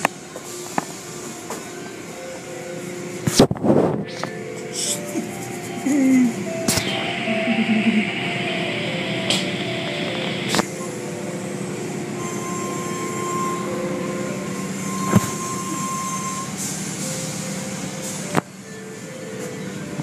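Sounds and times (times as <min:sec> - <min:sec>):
motor hum: 0:01.3 - 0:16.6
car wash spray and rumble: 0:10.6 - 0:19.1.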